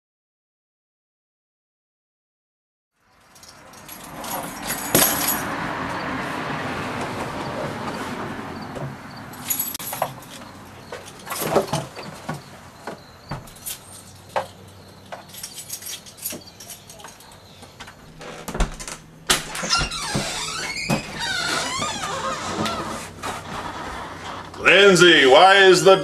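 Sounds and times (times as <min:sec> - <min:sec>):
keys clinking: 0:03.2 - 0:05.5, 0:09.3 - 0:12.3, 0:13.4 - 0:17.5.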